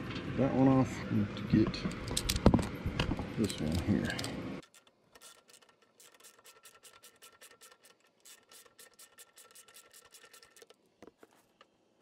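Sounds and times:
ratchet wrench clicking: 3.4s - 10.7s.

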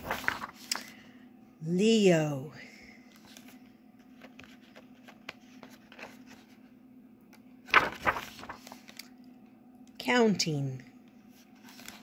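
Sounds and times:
book page turning swish: 0.0s - 0.9s, 7.7s - 9.0s, 11.4s - 12.0s
fingers rustling on paper: 0.0s - 0.9s
low steady hum: 0.0s - 12.0s.

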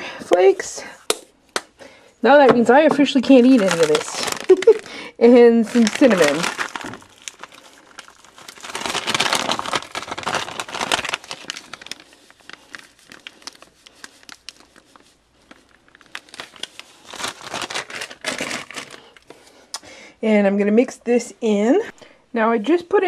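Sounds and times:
plastic pouch crinkling: 3.0s - 19.4s.

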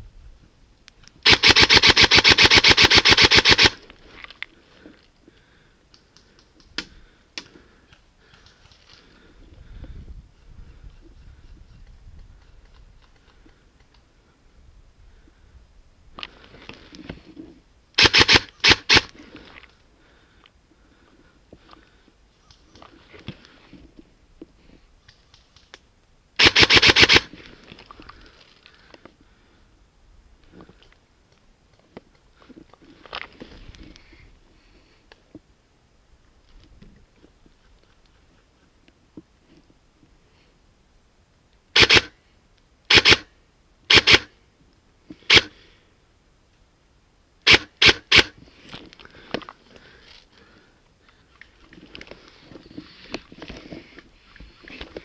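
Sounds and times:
airsoft gun rapid burst: 1.2s - 3.8s, 18.0s - 19.1s, 26.4s - 27.3s, 41.8s - 42.1s, 42.9s - 43.3s, 43.9s - 44.3s, 45.3s - 45.5s, 47.5s - 48.3s
faint rustling: 48.4s - 55.0s.

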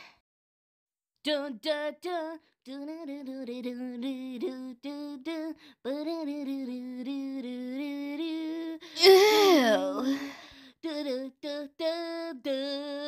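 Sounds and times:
person humming a wordless tune: 2.8s - 11.4s.

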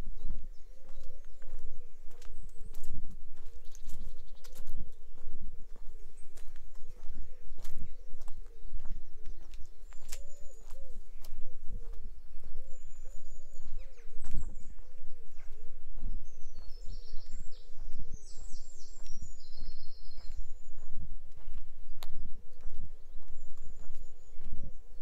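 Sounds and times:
songbird chirps and trills: 0.0s - 25.0s
walking footsteps: 0.0s - 25.0s
pigeon cooing: 0.6s - 2.1s, 10.1s - 16.1s.

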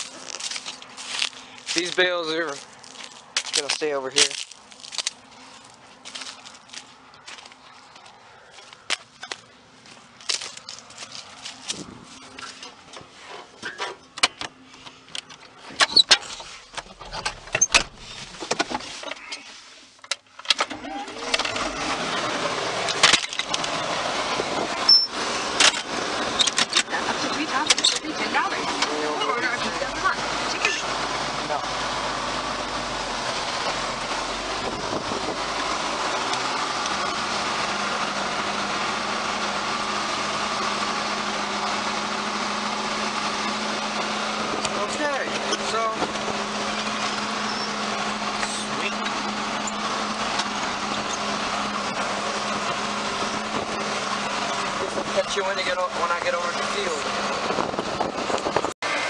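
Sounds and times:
tractor engine running: 0.0s - 59.0s
sharp clicks and clanks: 25.6s - 28.2s.

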